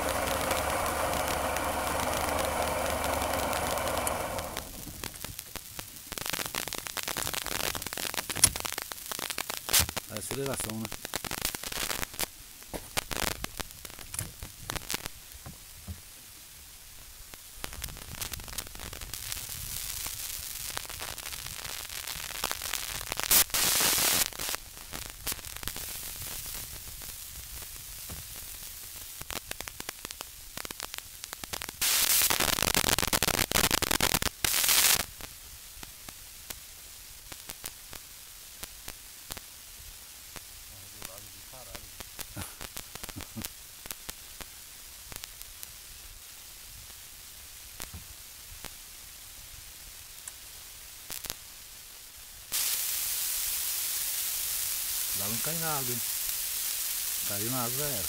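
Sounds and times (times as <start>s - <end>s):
outboard motor running: 0.0s - 5.0s.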